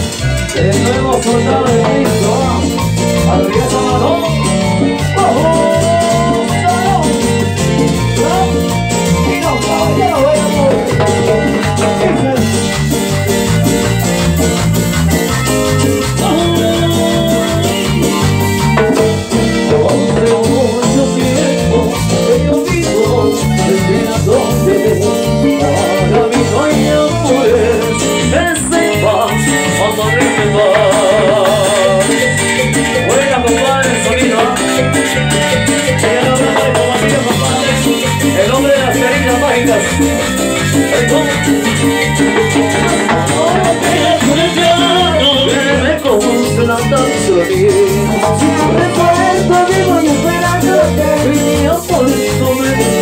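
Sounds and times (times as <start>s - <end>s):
latin dance band: 0.0s - 53.0s
people singing: 0.5s - 4.6s, 15.8s - 18.4s, 19.4s - 53.0s.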